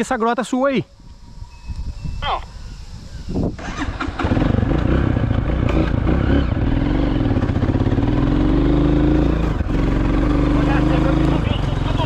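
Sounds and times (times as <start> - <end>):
motorcycle engine running: 3.5 - 12.0.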